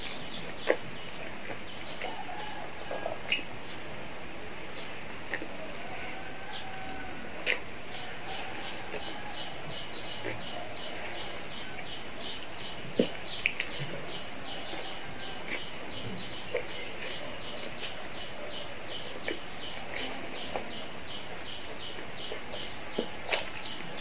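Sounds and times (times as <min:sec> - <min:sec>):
person chewing pizza: 0:05.1 - 0:24.0.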